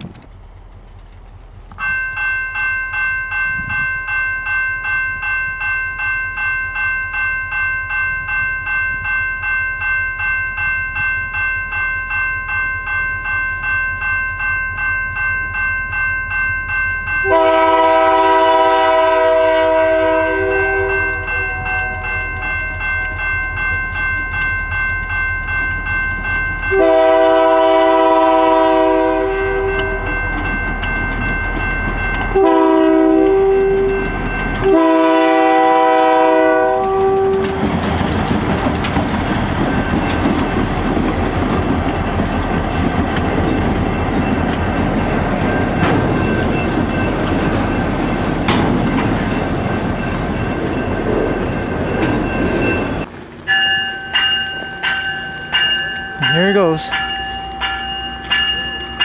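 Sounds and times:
train wheels rumbling: 0.0s - 59.0s
bell ringing: 1.8s - 18.2s, 20.0s - 27.6s, 29.0s - 35.2s, 43.4s - 59.0s
locomotive chime air horn: 17.2s - 23.4s, 26.6s - 30.5s, 32.3s - 37.6s
freight cars clickety-clack: 29.2s - 34.8s, 36.6s - 53.1s.

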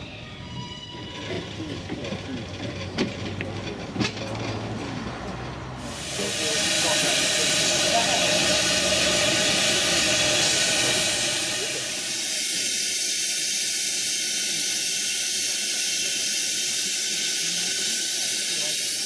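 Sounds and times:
steam locomotive hissing: 5.8s - 19.0s.

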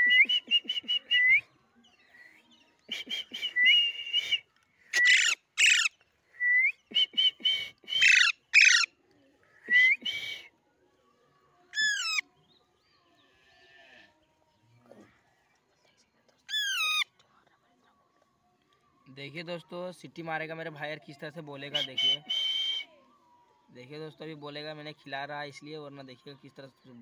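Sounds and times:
falling whistled bird call: 2.9s - 5.9s, 6.5s - 8.9s
parakeets chirping and squawking: 5.0s - 5.9s, 8.0s - 8.9s.

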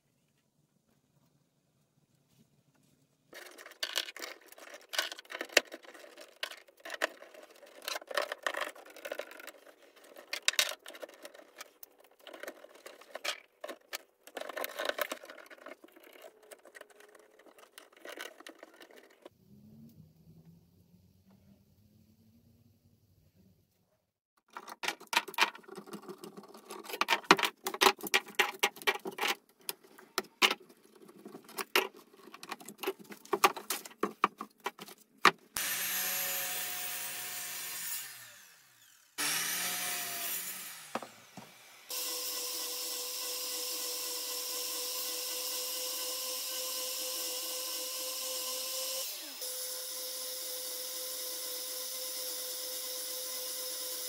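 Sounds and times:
sharp clicks and knocks: 24.4s - 35.6s
miter saw starting and spinning down: 35.6s - 51.7s.

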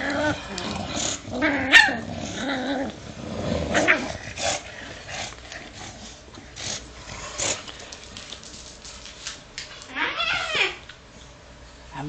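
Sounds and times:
dog growling: 0.0s - 7.8s.

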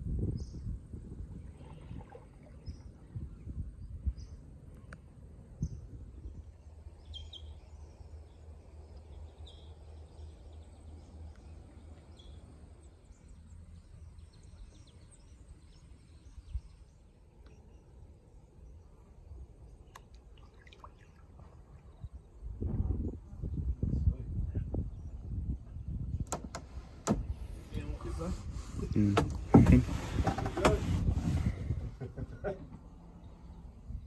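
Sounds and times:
wind rumble on microphone: 0.0s - 17.2s, 20.8s - 34.0s
high bird chirps: 7.0s - 8.1s.

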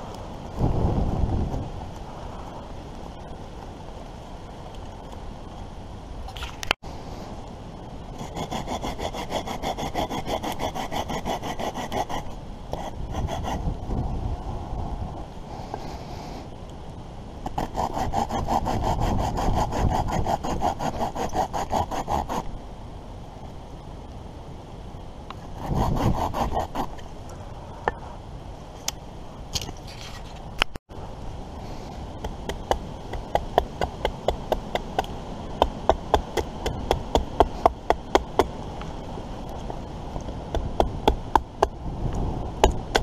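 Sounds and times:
hand saw cutting wood: 8.2s - 13.6s, 17.5s - 22.5s, 25.6s - 27.0s.

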